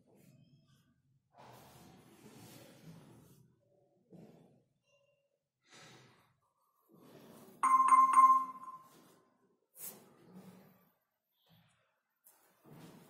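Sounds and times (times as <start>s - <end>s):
bell-like chime: 7.6s - 9.0s.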